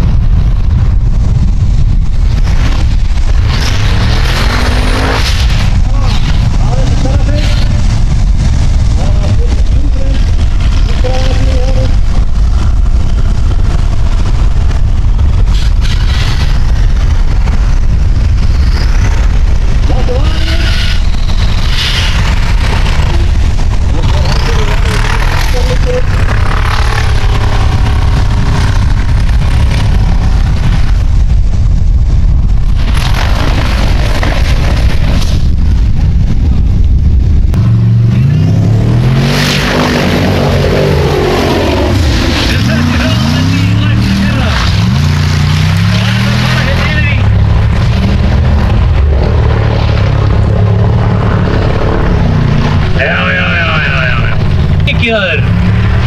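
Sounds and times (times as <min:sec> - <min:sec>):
buggy engine rumbling: 0:00.0 - 0:56.0.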